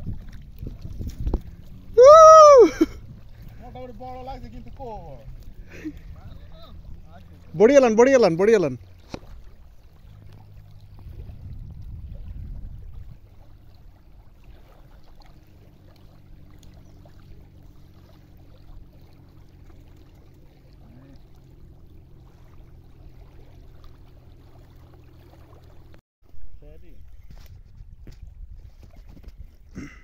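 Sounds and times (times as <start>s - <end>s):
low rumble: 0.0s - 7.6s, 8.8s - 16.6s
small waves lapping on sand: 0.0s - 26.0s
low steady hum: 0.0s - 28.5s.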